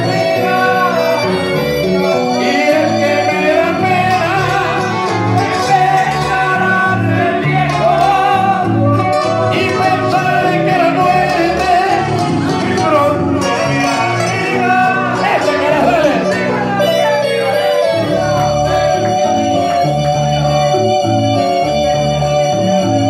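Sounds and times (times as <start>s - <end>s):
man singing into a microphone: 0.0s - 18.0s
amplified accompaniment with bass: 0.0s - 23.0s.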